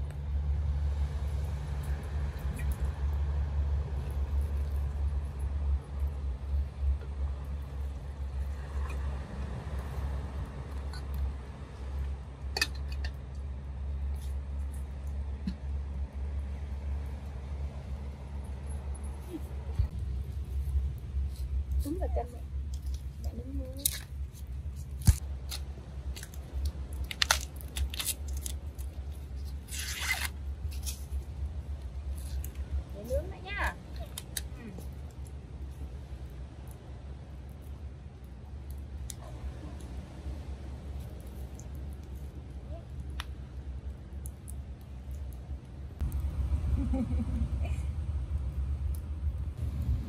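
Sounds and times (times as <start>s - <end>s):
steady low rumble: 0.0s - 50.0s
corn husks snapping and crackling: 19.9s - 40.0s, 40.8s - 46.3s
husk ripping: 22.6s - 32.7s.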